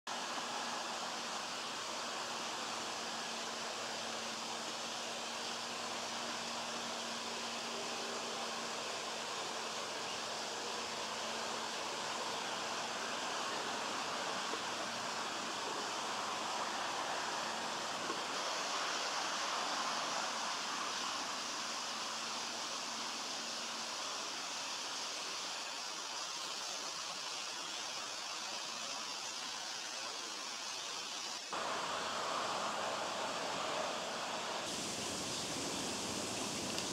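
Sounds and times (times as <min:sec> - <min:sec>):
steady rushing noise: 0:31.4 - 0:36.9.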